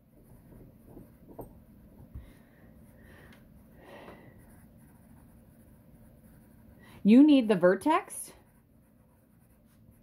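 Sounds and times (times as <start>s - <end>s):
pencil scratching on paper: 0.2s - 1.3s, 4.2s - 10.0s.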